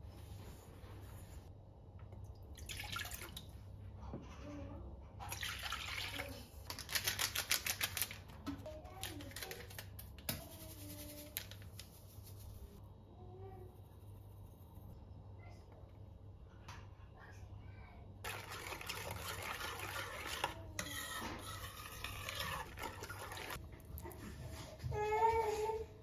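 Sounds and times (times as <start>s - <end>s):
liquid pouring into bowl: 2.1s - 3.5s, 5.2s - 6.4s, 18.2s - 20.6s, 21.5s - 24.1s.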